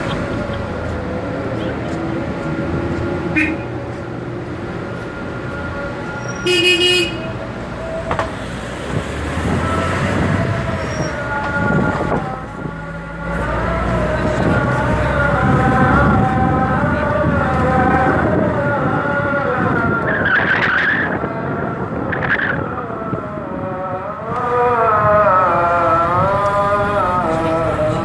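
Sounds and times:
car engine and road noise: 0:00.0 - 0:28.0
car horn honking: 0:03.3 - 0:03.7, 0:06.2 - 0:07.4.

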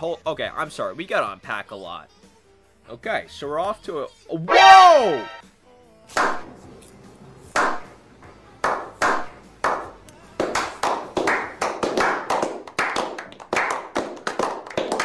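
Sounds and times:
sharp clap-like impacts: 0:06.1 - 0:06.5, 0:07.5 - 0:07.9, 0:08.6 - 0:15.0.

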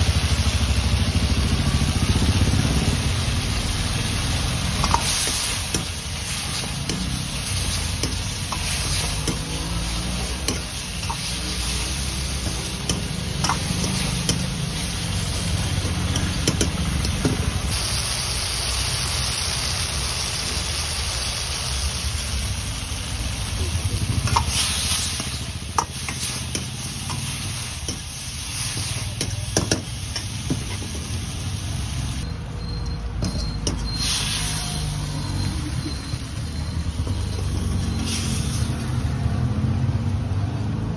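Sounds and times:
chicken sizzling in a wok: 0:00.0 - 0:32.3, 0:33.8 - 0:40.1
metal ladle scraping a wok: 0:33.3 - 0:36.0.

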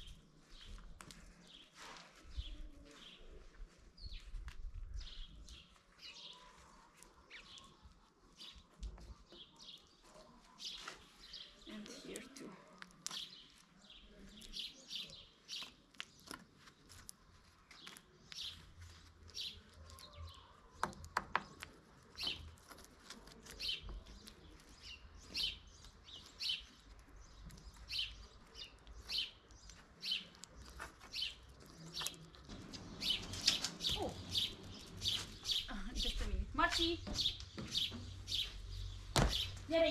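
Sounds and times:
bird chirping: 0:17.7 - 0:39.9.

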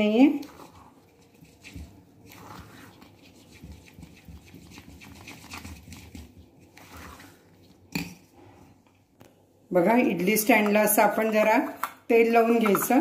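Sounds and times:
spoon beating wet batter: 0:00.4 - 0:08.2.

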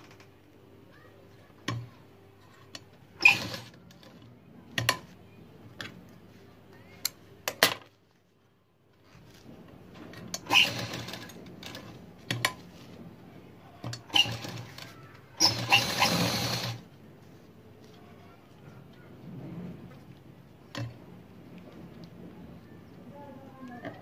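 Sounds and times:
sewing machine stitching: 0:03.2 - 0:04.2, 0:10.1 - 0:12.6, 0:13.8 - 0:16.9.

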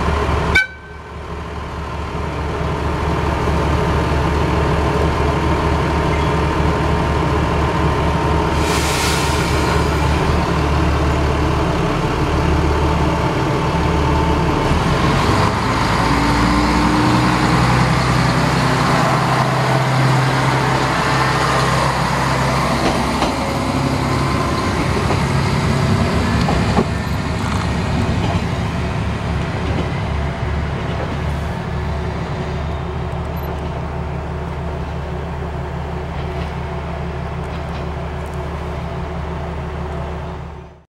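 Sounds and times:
diesel railcar engine: 0:00.0 - 0:40.8
short hiss: 0:08.6 - 0:10.1.

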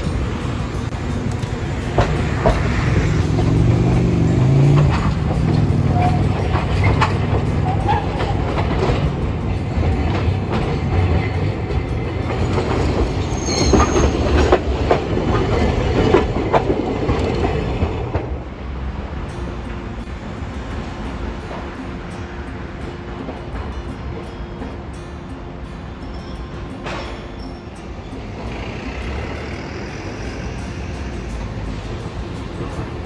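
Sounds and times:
steel wheels rumbling on rails: 0:00.0 - 0:33.0
wheels clacking over rail joints: 0:00.0 - 0:33.0
high wheel squeal: 0:01.9 - 0:09.0, 0:11.0 - 0:15.0, 0:26.1 - 0:32.8.

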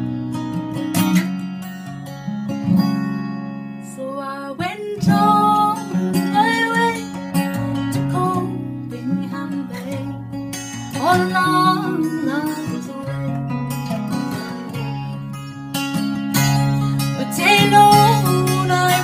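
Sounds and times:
acoustic guitar strumming: 0:00.0 - 0:19.0
woman singing: 0:03.8 - 0:15.4, 0:17.0 - 0:19.0.

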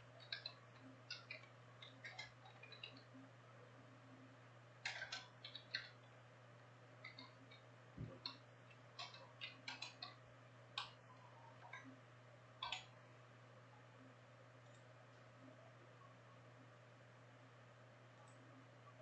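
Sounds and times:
faint steady hum: 0:00.0 - 0:19.0
mouse and keyboard clicks: 0:00.2 - 0:03.2, 0:04.8 - 0:06.1, 0:07.0 - 0:10.2, 0:10.8 - 0:11.9, 0:12.6 - 0:13.0.

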